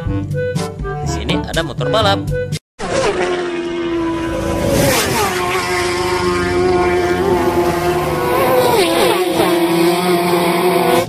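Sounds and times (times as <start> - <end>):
racing motorcycles passing: 2.8 - 11.0.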